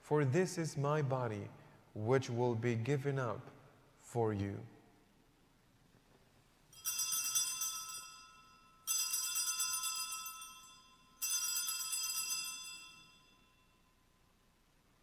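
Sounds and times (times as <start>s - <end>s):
altar bells jingling: 6.8s - 13.9s.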